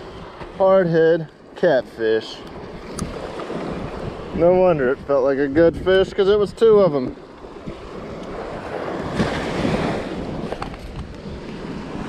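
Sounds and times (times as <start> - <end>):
surf washing onto beach: 0.0 - 12.0
wind on microphone: 2.4 - 12.0.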